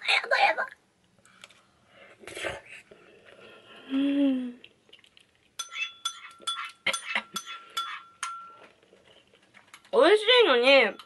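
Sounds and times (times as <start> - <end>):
metal spoon clinking on dish: 5.6 - 8.6.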